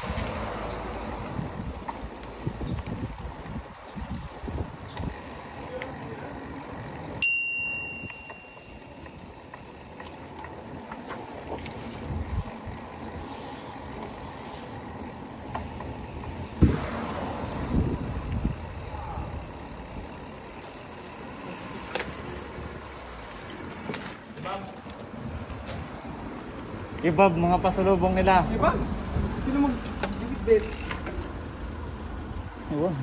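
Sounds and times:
bicycle tyres on road: 0.0 - 33.0
street traffic: 0.0 - 33.0
wind: 0.0 - 33.0
bicycle brakes squealing: 5.0 - 9.9, 18.6 - 25.7
bicycle bell ding: 7.2 - 9.0, 21.0 - 25.5.

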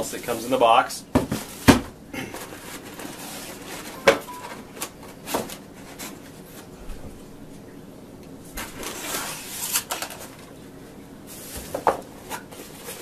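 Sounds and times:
knocks on cardboard box: 1.1 - 1.9
packaging rustling: 2.3 - 6.4.

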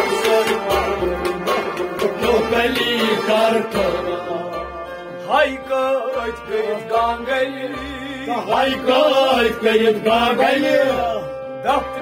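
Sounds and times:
goblet drum beat: 0.0 - 4.2
harmonium: 0.0 - 12.0
man singing: 0.0 - 12.0.

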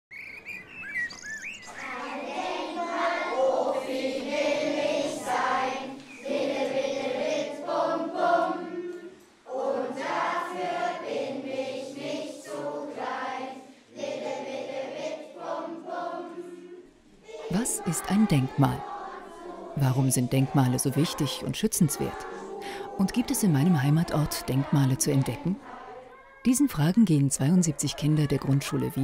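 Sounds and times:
bird chirping: 0.1 - 2.6, 6.0 - 6.6
children singing in unison: 1.6 - 26.4.

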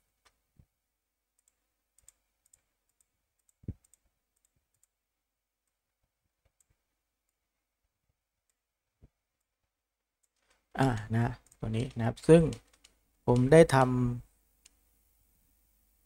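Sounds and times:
computer mouse clicks: 1.4 - 5.0, 10.2 - 13.7.

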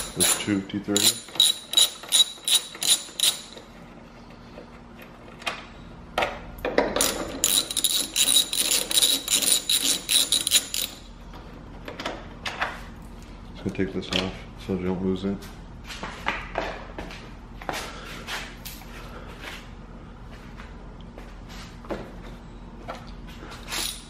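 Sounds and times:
hand ratchet clicking: 0.0 - 3.6, 7.0 - 11.0.

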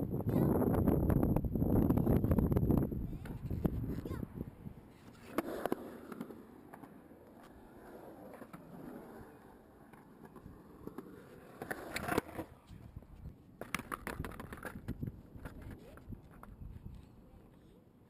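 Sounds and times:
skateboard wheels rumbling on concrete: 0.0 - 18.0
board clacking on concrete: 13.6 - 16.6.

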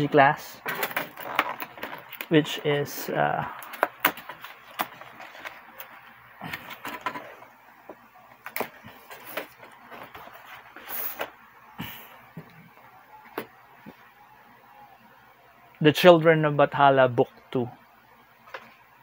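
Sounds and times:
paper envelope rustling: 0.6 - 7.5, 8.4 - 11.3.

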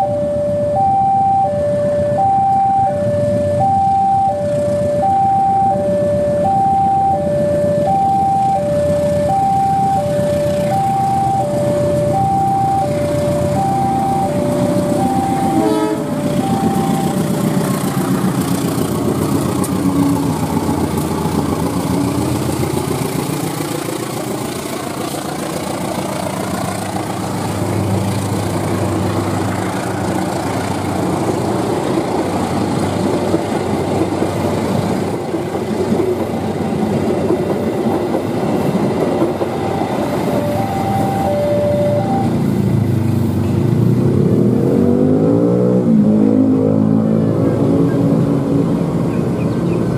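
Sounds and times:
two-tone level crossing alarm: 0.0 - 22.6, 37.8 - 42.8
diesel locomotive passing: 0.0 - 49.9
train carriages rumbling on rails: 12.9 - 44.9, 45.8 - 49.9.

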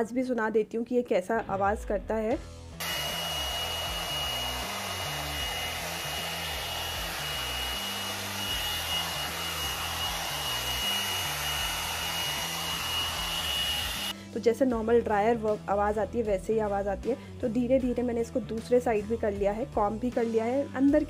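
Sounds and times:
hot air brush blowing: 2.8 - 14.2.

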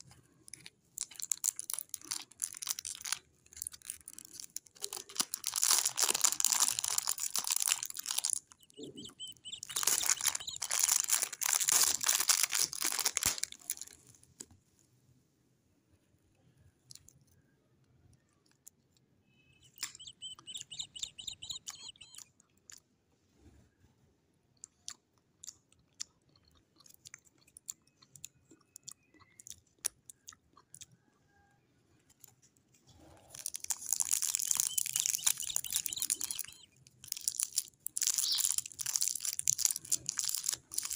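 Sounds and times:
cellophane wrapper crinkling: 0.0 - 14.4, 33.2 - 40.9
small clicks and rustles: 0.0 - 14.8, 31.9 - 40.9.

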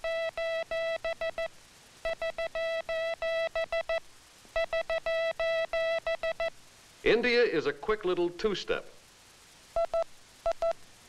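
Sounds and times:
morse code buzzy tone: 0.0 - 4.0, 4.6 - 6.5, 9.8 - 10.8.

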